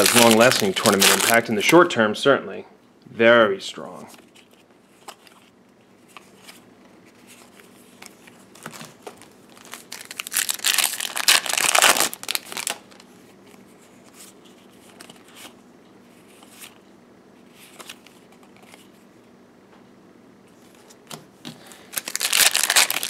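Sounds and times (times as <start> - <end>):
foil wrapper tearing: 0.0 - 1.6, 8.7 - 13.0, 21.8 - 23.0
foil wrapper crinkling: 0.0 - 1.7, 8.5 - 13.1, 21.6 - 23.0.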